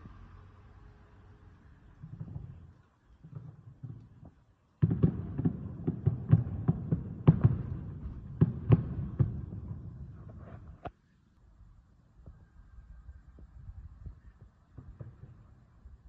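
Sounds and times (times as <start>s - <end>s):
fireworks booming: 1.7s - 10.9s, 14.4s - 16.0s.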